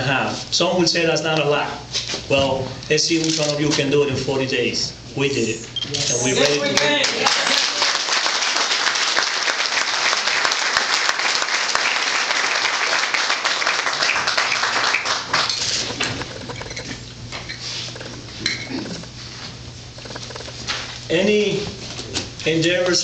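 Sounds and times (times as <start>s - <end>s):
crowd applauding: 6.5s - 15.7s.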